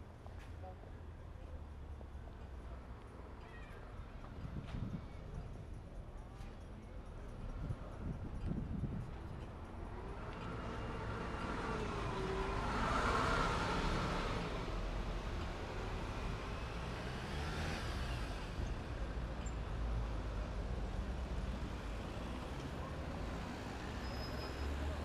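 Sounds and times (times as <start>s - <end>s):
street traffic rumble: 0.0s - 25.0s
bus driving past: 9.4s - 25.0s
car passing: 10.0s - 18.6s.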